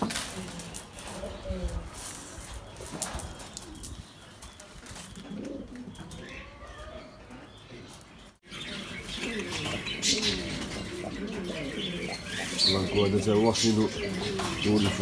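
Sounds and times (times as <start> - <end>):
pigeons cooing: 0.5 - 15.0.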